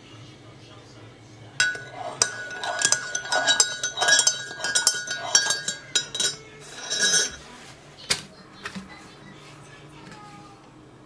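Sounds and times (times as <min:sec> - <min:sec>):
metal spoon clinking in a mug: 0:01.6 - 0:07.4.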